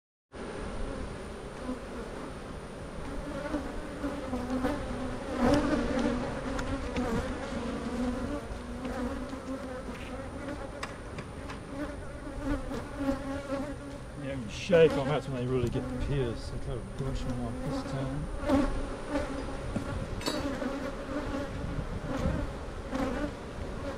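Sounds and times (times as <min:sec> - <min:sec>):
bees buzzing: 0:00.4 - 0:23.9.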